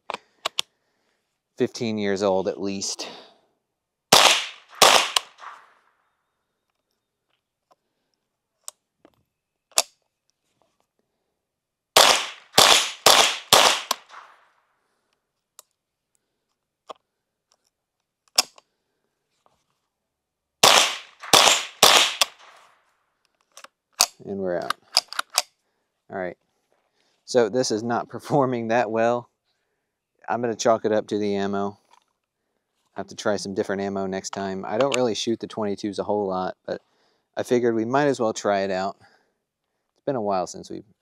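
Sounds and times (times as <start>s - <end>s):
suppressed pistol shots: 4.1s - 5.7s, 12.0s - 14.4s, 20.6s - 22.6s.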